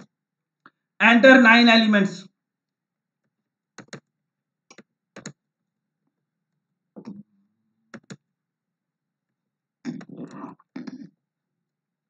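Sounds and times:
keyboard keys clicking: 0:03.8 - 0:04.1, 0:04.7 - 0:05.4, 0:07.9 - 0:08.2.

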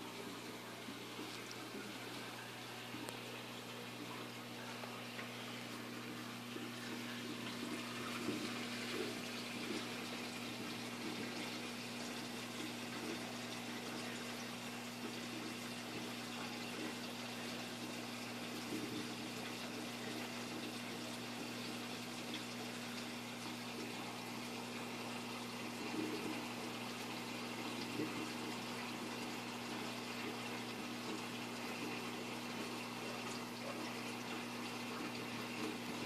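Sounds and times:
pump electric hum: 0:00.0 - 0:36.0
water trickling and splashing: 0:00.0 - 0:36.0.

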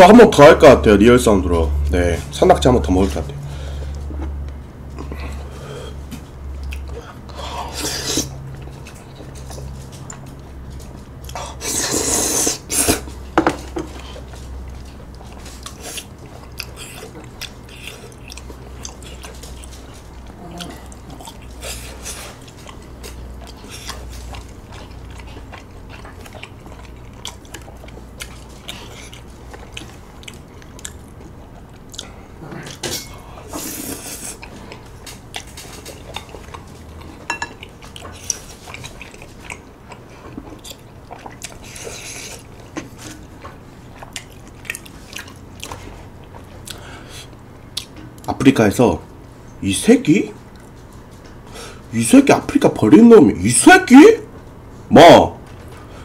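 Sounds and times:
wet chewing: 0:06.5 - 0:48.3
noisy slurps: 0:11.3 - 0:13.1.

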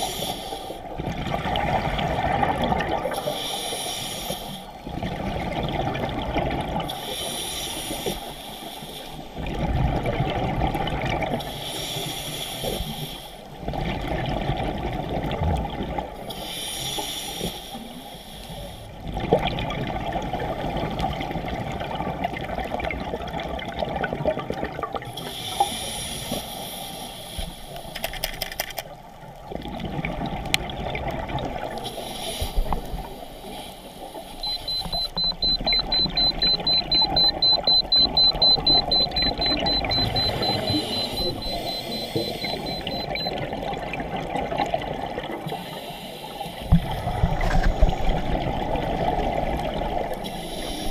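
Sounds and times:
regulator inhale hiss: 0:00.0 - 0:00.8, 0:03.2 - 0:04.7, 0:07.0 - 0:09.3, 0:11.5 - 0:13.5, 0:16.3 - 0:18.9, 0:25.2 - 0:27.9, 0:31.8 - 0:34.4, 0:45.5 - 0:46.8, 0:50.2 - 0:50.9.

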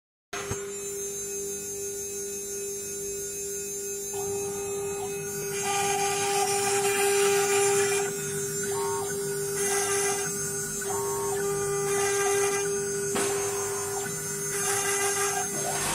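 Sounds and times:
router spindle whining: 0:04.0 - 0:15.9
bit cutting wood hiss: 0:05.0 - 0:15.9.

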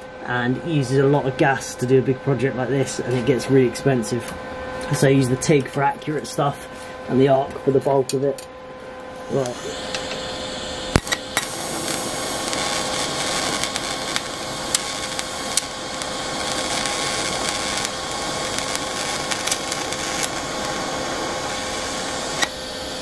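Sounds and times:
faint constant hum: 0:00.0 - 0:23.0
welding arc hissing: 0:09.2 - 0:23.0.

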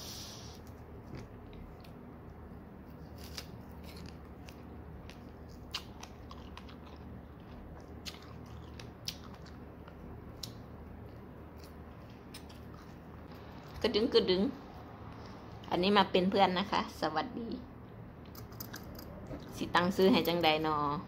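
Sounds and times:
person chewing strawberries: 0:00.5 - 0:13.7.

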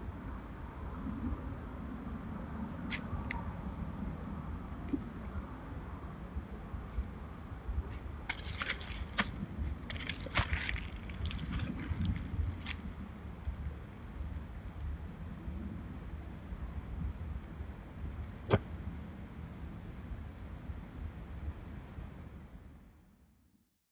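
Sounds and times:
steady low background noise: 0:00.0 - 0:23.5
dry leaves and twigs crunching: 0:08.0 - 0:14.0.

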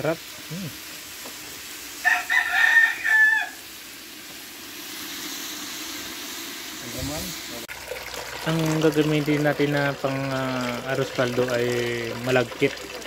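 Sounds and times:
chicken sizzling in a pot: 0:00.0 - 0:13.0
rooster crowing: 0:02.0 - 0:03.7.

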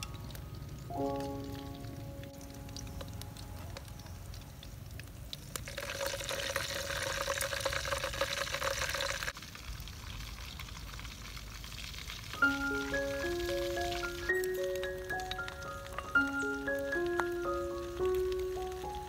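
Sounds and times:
hot oil sizzling in a wok: 0:04.0 - 0:19.0
mallet percussion melody: 0:12.4 - 0:19.0.

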